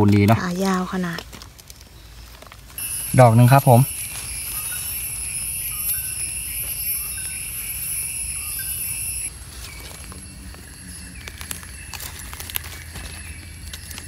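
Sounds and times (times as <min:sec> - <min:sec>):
insects droning: 0:02.8 - 0:14.0.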